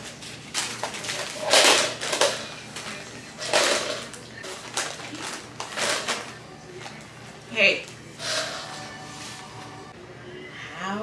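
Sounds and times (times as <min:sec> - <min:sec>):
diaper and wipes crinkling: 0:00.0 - 0:07.1.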